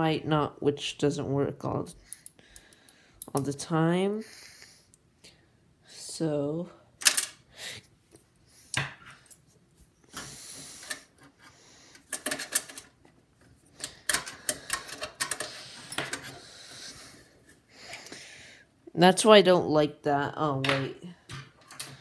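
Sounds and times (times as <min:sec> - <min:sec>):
screwdriver metallic clicks and clatter: 0:11.9 - 0:13.0.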